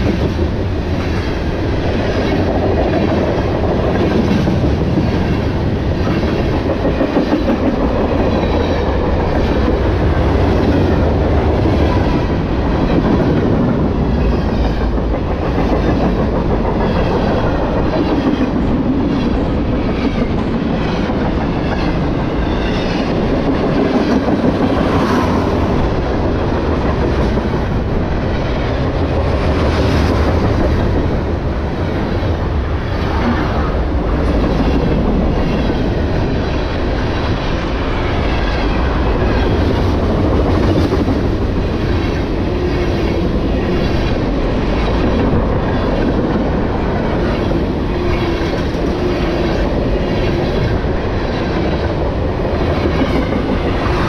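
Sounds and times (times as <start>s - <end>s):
freight train wheels rumbling: 0.0s - 54.0s.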